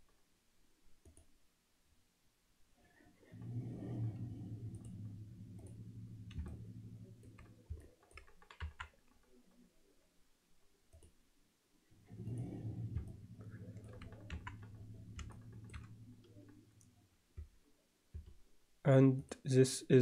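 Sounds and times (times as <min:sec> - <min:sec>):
low hum: 0:03.1 - 0:08.8, 0:11.8 - 0:18.6
mouse and keyboard clicks: 0:12.3 - 0:16.6.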